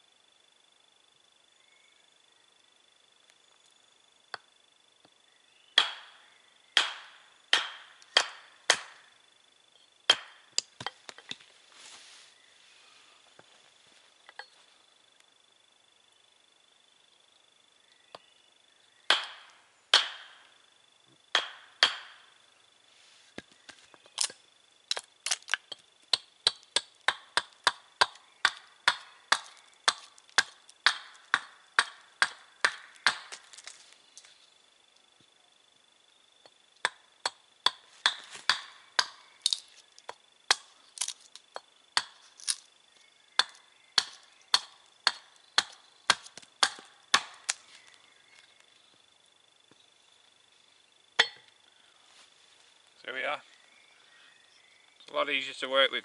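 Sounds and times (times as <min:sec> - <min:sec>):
wooden maul knocking axe head: 0:05.8 - 0:06.1, 0:06.8 - 0:09.0, 0:10.1 - 0:11.0, 0:19.1 - 0:20.3, 0:21.4 - 0:22.2, 0:36.8 - 0:39.2, 0:43.4 - 0:47.5, 0:51.2 - 0:51.5
axe chopping wood: 0:05.8 - 0:06.2, 0:06.8 - 0:09.1, 0:10.1 - 0:11.2, 0:19.1 - 0:20.4, 0:21.3 - 0:22.2, 0:23.6 - 0:33.8, 0:36.8 - 0:42.6, 0:43.4 - 0:47.7.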